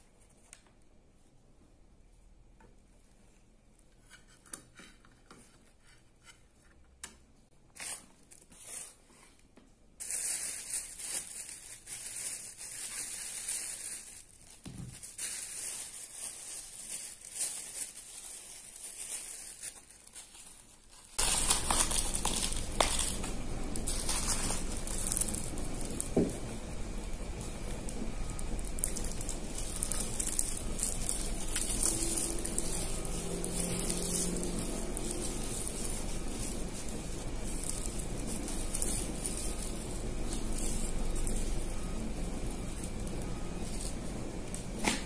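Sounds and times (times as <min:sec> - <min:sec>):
plastic bag crinkling: 0:10.0 - 0:44.8.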